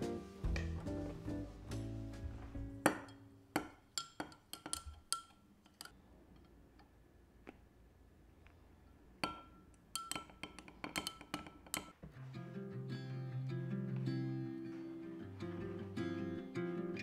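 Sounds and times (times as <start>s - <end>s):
spoon clinking glass bottle: 3.9s - 5.9s, 9.2s - 11.9s.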